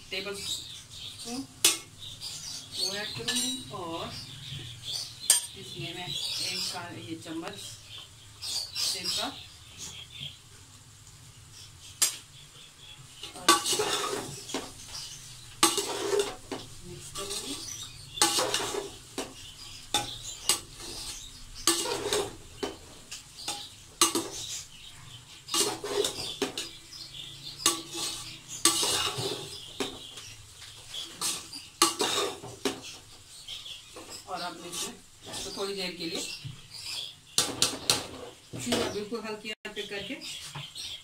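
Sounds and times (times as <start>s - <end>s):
metal spatula scraping pot: 13.2s - 33.1s, 33.9s - 39.0s.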